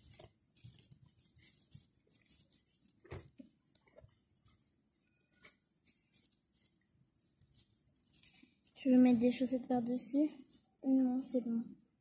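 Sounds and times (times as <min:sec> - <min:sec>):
cloth rustling: 0:00.0 - 0:09.6.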